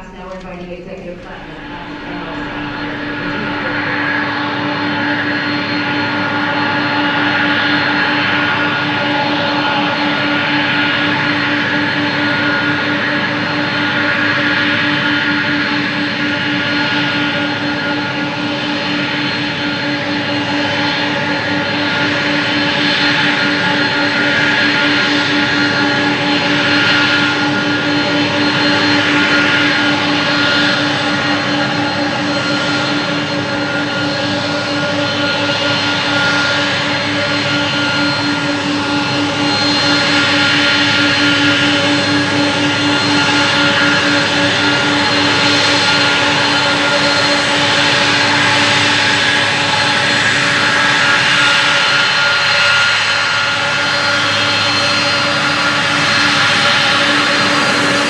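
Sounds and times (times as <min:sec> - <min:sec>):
low hum: 0:00.0 - 0:05.7
jet engine whine: 0:00.0 - 0:58.0.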